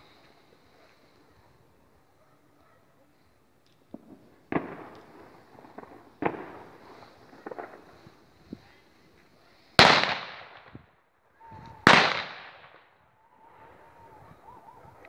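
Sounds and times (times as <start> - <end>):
firework bangs with echo: 3.9 - 8.2, 9.8 - 10.9, 11.8 - 12.9.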